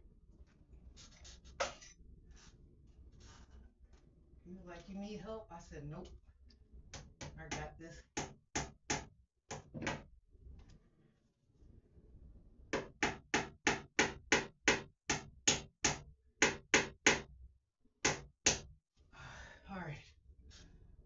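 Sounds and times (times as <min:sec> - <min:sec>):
hammer tapping: 0:07.0 - 0:10.0, 0:12.8 - 0:17.2, 0:18.0 - 0:18.6.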